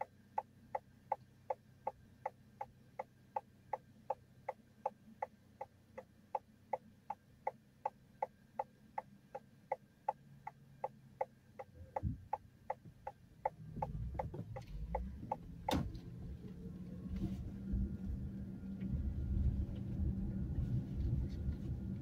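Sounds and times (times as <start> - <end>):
steady ticking: 0.0 - 15.8
car engine and tyres rumbling: 0.0 - 22.0.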